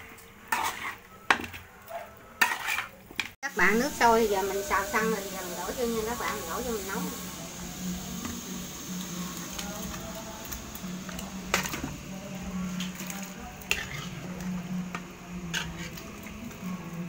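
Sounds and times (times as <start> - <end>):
metal spatula scraping a pan: 0.0 - 3.4, 11.1 - 12.0, 12.6 - 16.8.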